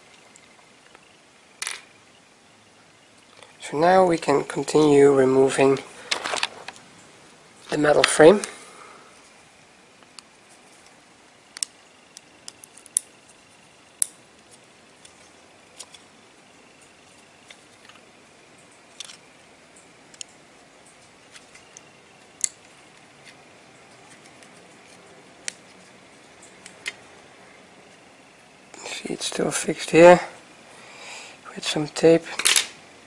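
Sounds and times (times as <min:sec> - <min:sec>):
faint hiss: 0:00.0 - 0:33.0.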